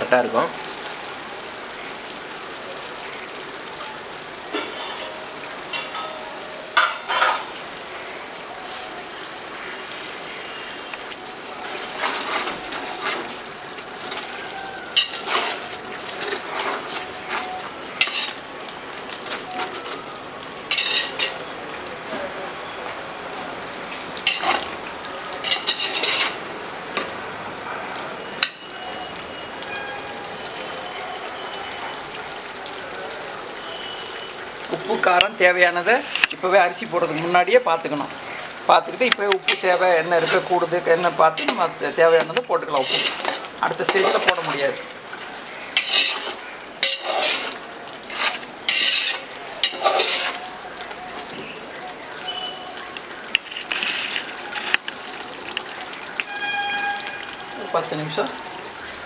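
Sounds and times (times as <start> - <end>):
chicken sizzling in a pot: 6.7 - 20.0, 20.6 - 21.6, 24.1 - 26.5, 38.3 - 55.5
metal spatula scraping a pot: 11.8 - 13.4, 14.9 - 18.4, 20.7 - 21.4, 24.3 - 24.7, 25.4 - 26.4, 42.7 - 44.5, 45.7 - 50.5.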